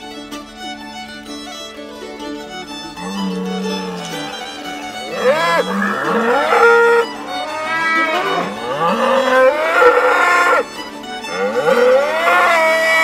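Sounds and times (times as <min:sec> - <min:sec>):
fiddle music: 0:00.0 - 0:13.0
cattle mooing: 0:03.0 - 0:04.4, 0:05.1 - 0:10.7, 0:11.3 - 0:13.0.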